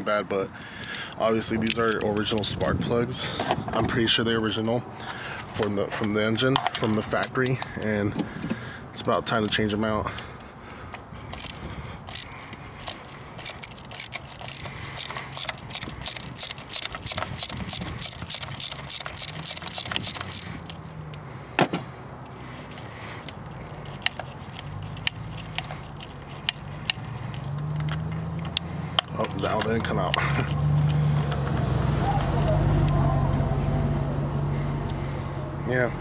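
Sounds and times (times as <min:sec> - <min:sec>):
ratchet clicking: 0:11.3 - 0:21.2, 0:22.7 - 0:31.7.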